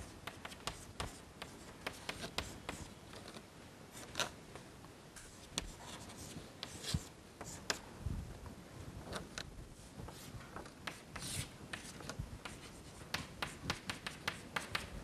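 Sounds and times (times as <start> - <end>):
chalk scratching on blackboard: 0.0 - 2.9, 10.1 - 14.9.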